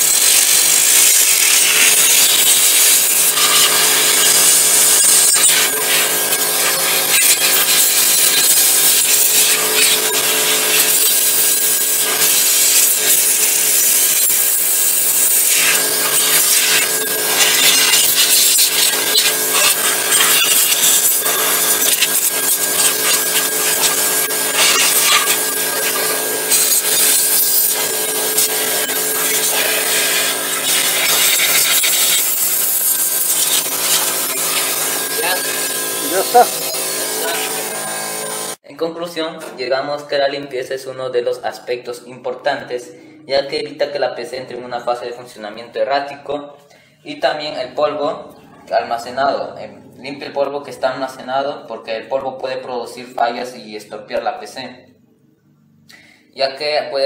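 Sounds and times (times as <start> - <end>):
steady machine hum: 0.0 - 38.6
compressed air blow gun hissing: 1.5 - 38.5.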